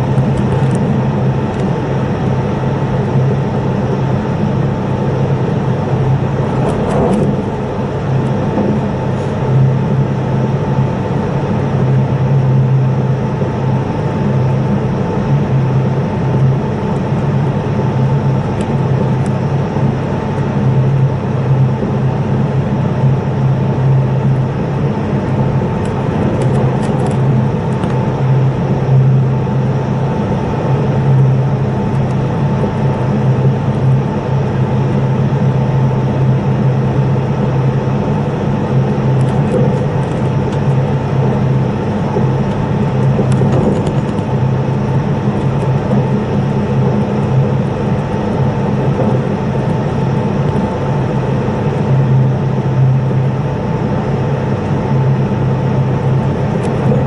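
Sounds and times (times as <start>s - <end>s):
train cabin rumble: 5.5s - 11.0s, 39.1s - 49.6s.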